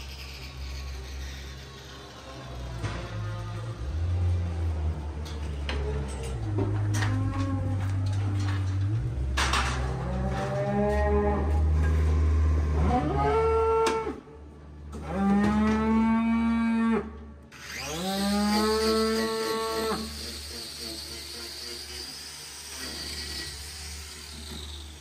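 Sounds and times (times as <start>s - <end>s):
cow mooing: 9.9s - 14.2s, 15.0s - 17.2s.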